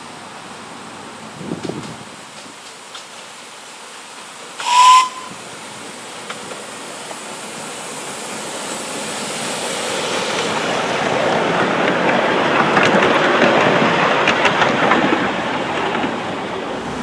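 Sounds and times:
train passing on track: 0.0s - 17.0s
steam hissing: 0.9s - 17.0s
steam locomotive whistle: 4.6s - 5.4s.

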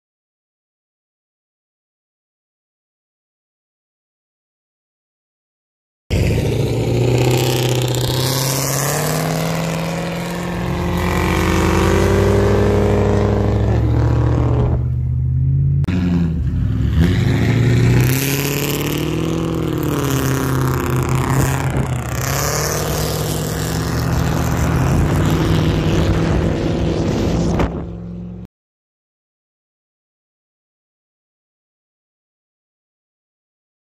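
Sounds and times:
car engine revving: 6.1s - 28.5s.

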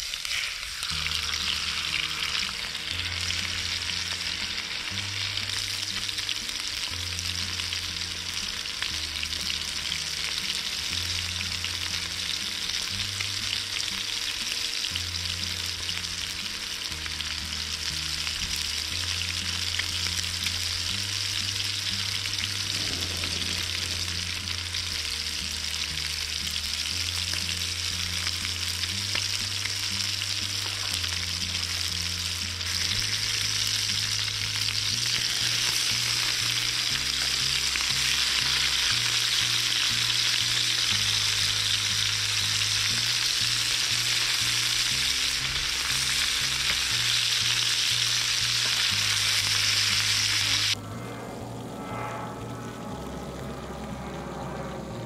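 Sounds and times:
chicken sizzling in pan: 0.0s - 50.8s
background music with bass: 0.8s - 55.0s.

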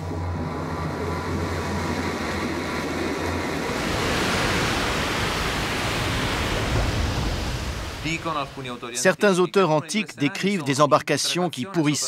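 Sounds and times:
low hum: 0.0s - 8.8s
rushing churning water: 0.0s - 8.9s.

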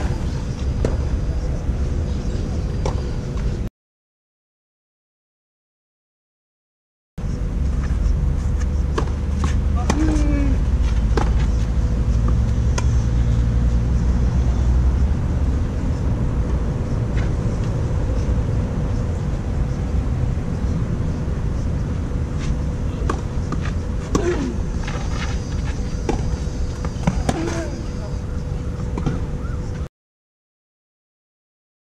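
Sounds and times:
faint hum: 0.0s - 3.7s, 7.2s - 29.9s
steady low rumble: 0.0s - 3.7s, 7.2s - 29.8s
racket hitting tennis ball: 8.9s - 11.6s.

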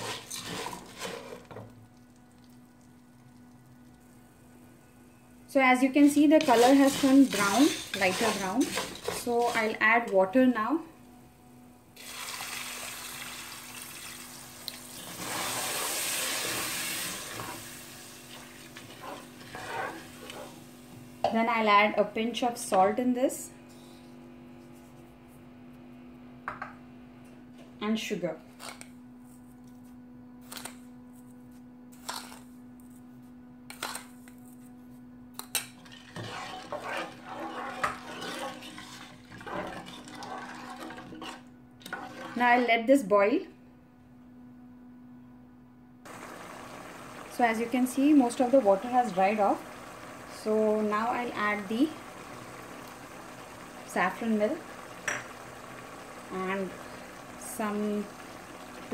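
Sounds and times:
spoon scraping and water sloshing: 0.0s - 1.6s, 6.4s - 9.8s, 35.7s - 42.6s
water pouring into hot pot: 12.0s - 17.3s, 46.1s - 58.9s.

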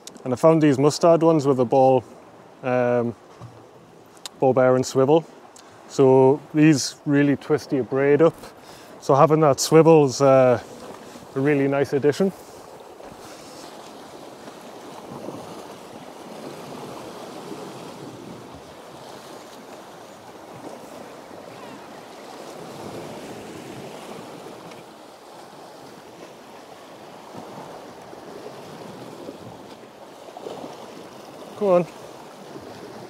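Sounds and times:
waves breaking against rocks: 0.0s - 33.0s.

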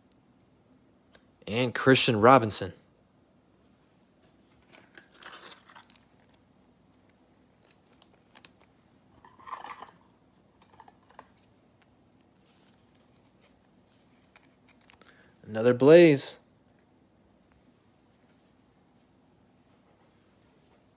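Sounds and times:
trading card packaging rustling: 4.5s - 10.0s, 10.6s - 15.3s.

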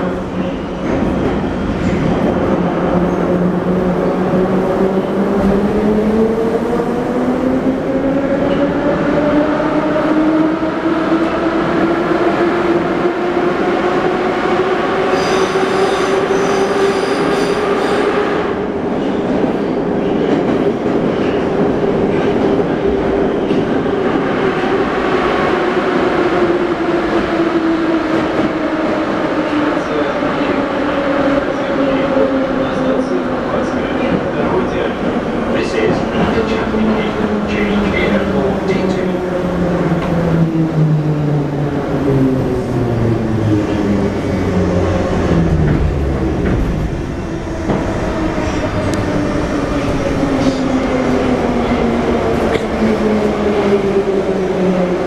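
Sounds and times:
wheels rumbling on rail: 18.4s - 55.0s.

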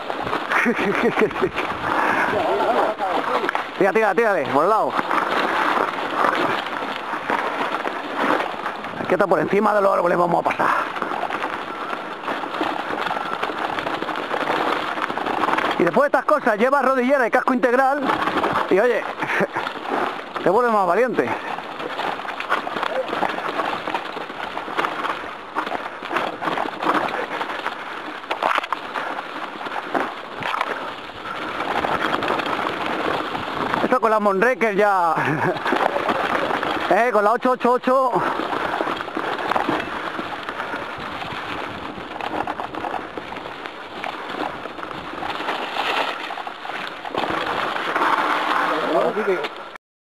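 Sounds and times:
bike rattling: 0.0s - 49.8s
bike tyres on dirt and stones: 0.0s - 49.8s.

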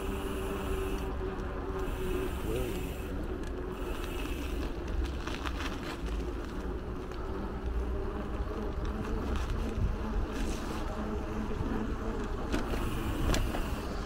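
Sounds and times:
faint steady hum: 0.0s - 14.0s
wind and road noise rumble: 0.0s - 14.0s.

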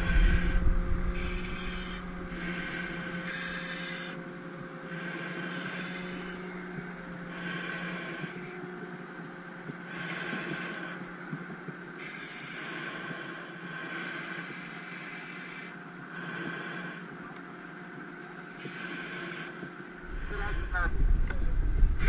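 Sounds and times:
low rumble of knocks: 0.0s - 2.6s, 20.0s - 22.0s
fire engine motor running: 0.0s - 14.0s, 19.8s - 22.0s
pulsing hiss: 0.0s - 17.4s, 18.0s - 22.0s.

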